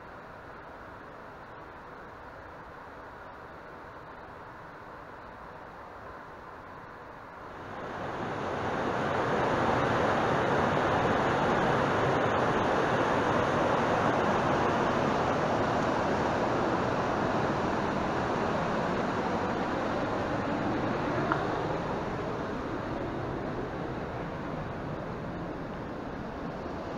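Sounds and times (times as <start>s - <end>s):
stream rushing over boulders: 7.2s - 26.9s.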